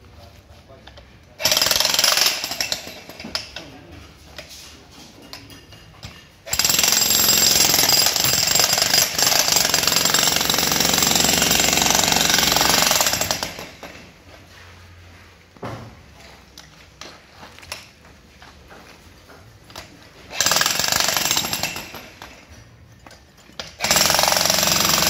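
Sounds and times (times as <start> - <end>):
demolition hammer chiseling concrete: 1.4 - 3.5, 6.5 - 14.0, 20.3 - 22.3, 23.6 - 25.0.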